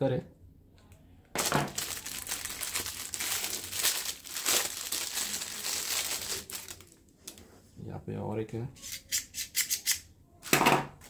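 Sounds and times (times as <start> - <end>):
packaging crinkling: 1.4 - 7.4.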